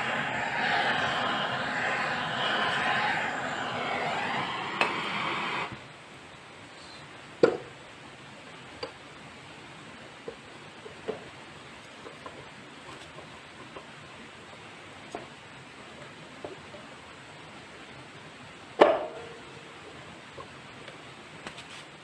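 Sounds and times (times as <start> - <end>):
aerosol spray can hissing: 0.0 - 5.8.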